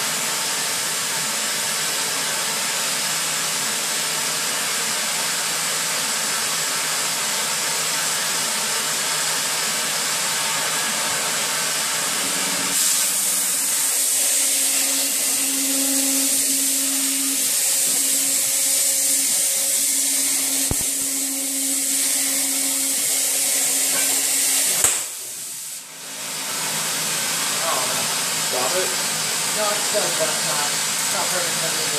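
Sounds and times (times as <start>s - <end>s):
cutting torch hissing: 12.1s - 26.6s, 27.3s - 31.9s.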